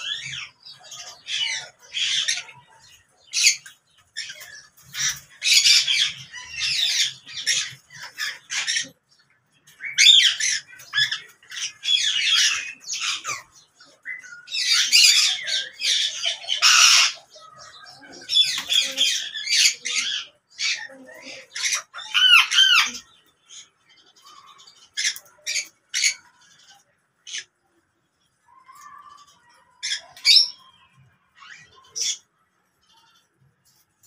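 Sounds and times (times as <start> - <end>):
parakeets squawking: 0.0 - 27.6, 28.6 - 32.3.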